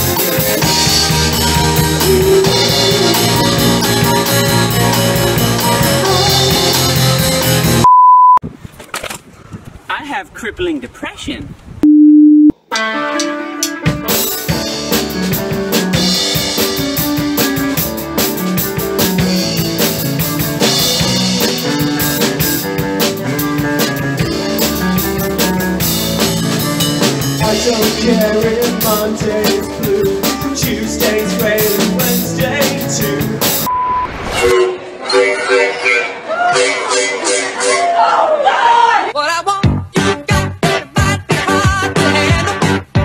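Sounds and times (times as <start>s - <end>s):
rock band playing: 0.0s - 7.8s, 12.6s - 34.9s.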